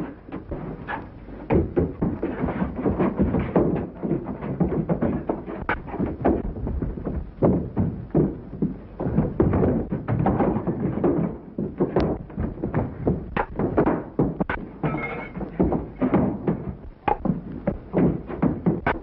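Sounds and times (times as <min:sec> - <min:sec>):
punches and thuds: 0:01.5 - 0:19.0.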